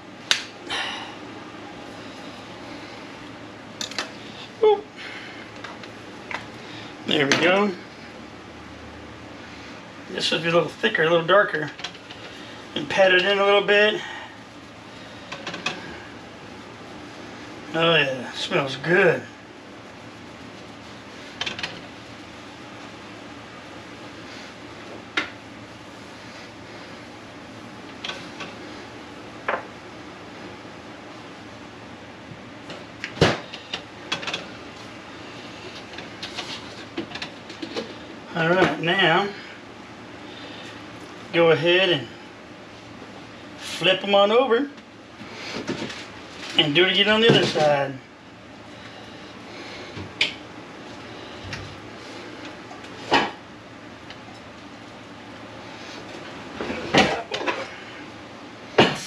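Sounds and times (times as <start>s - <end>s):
steady low hum: 0.0s - 59.0s.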